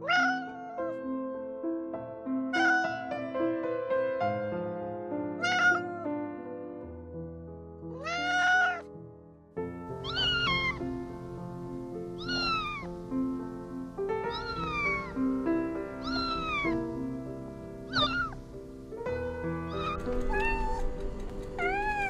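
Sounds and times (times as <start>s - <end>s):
kitten meowing: 0.0s - 1.0s, 2.5s - 3.2s, 5.4s - 6.1s, 7.9s - 8.9s, 10.0s - 10.9s, 12.2s - 12.9s, 14.2s - 15.3s, 16.0s - 16.9s, 17.9s - 18.4s, 19.7s - 20.9s, 21.6s - 22.0s
background music: 0.6s - 22.0s.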